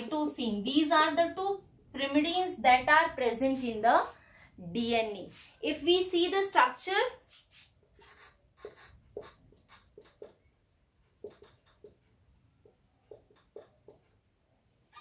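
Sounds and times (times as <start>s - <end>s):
marker squeaking on whiteboard: 7.2s - 15.0s.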